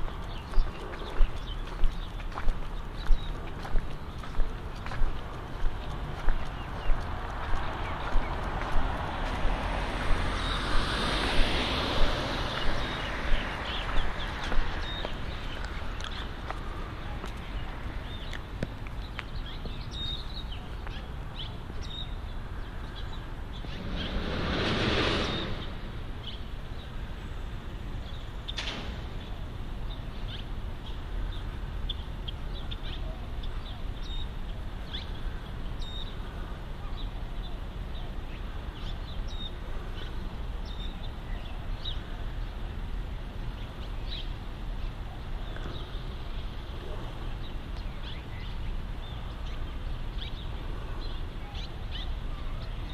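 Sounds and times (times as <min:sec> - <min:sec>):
birds chirping: 0:00.0 - 0:52.9
traffic rumble: 0:00.0 - 0:52.9
vehicle passing: 0:03.3 - 0:18.1, 0:23.1 - 0:27.2.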